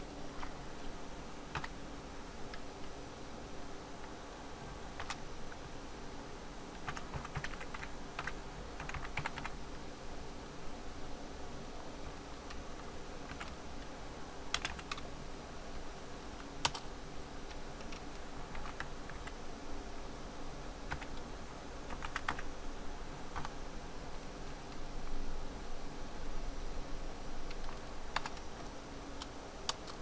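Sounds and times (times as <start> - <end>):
low background hum: 0.0 - 30.0
computer keyboard typing: 1.5 - 1.8, 5.0 - 5.3, 6.8 - 9.6, 13.2 - 13.6, 14.5 - 15.1, 16.4 - 16.9, 17.5 - 19.4, 20.9 - 21.2, 21.9 - 22.5, 23.3 - 23.5, 27.5 - 28.6, 29.2 - 30.0.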